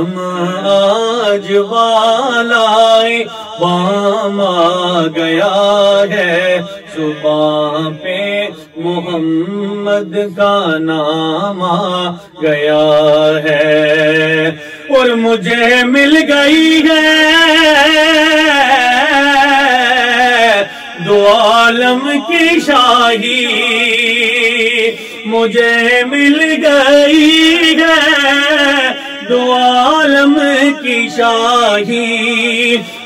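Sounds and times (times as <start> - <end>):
man singing solo: 12.4 - 33.0.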